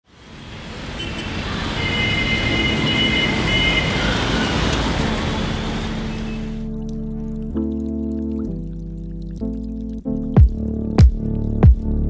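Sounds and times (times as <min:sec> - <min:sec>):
motorway traffic rushing: 0:00.0 - 0:06.6.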